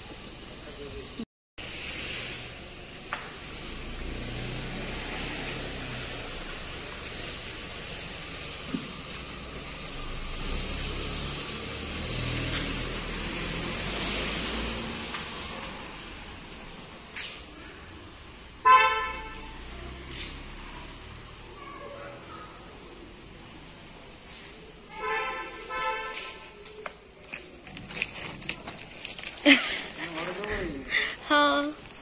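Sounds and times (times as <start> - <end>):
car engine humming: 0.0 - 1.2, 2.5 - 17.1.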